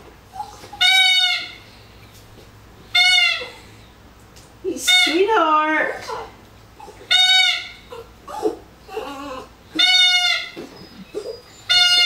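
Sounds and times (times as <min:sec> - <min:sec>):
squeaky dog toy squeaking: 0:00.4 - 0:01.6, 0:02.9 - 0:03.6, 0:04.8 - 0:05.3, 0:06.8 - 0:08.5, 0:09.7 - 0:12.0.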